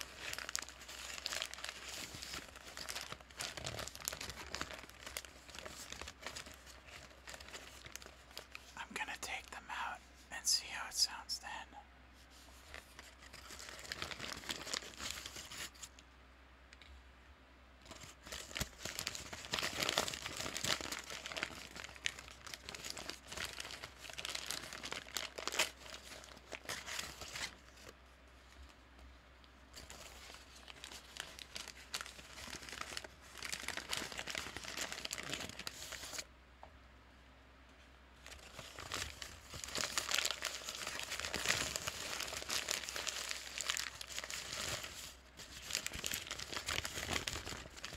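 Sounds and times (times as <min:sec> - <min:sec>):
paper bag crinkling: 0:00.0 - 0:08.7, 0:12.6 - 0:15.9, 0:18.0 - 0:27.7, 0:29.7 - 0:36.2, 0:38.2 - 0:47.9.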